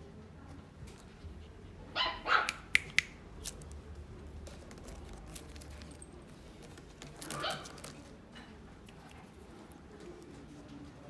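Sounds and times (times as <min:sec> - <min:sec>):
puppy barking: 0:01.9 - 0:02.7, 0:07.3 - 0:07.8
sharp clicks: 0:02.5 - 0:03.6.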